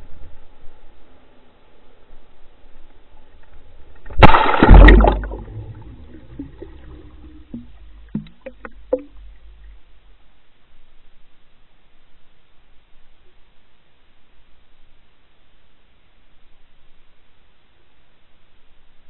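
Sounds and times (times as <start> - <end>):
camera splashing into water: 4.1 - 9.2
short pops: 4.1 - 9.7
trailing bubbles: 4.1 - 9.8.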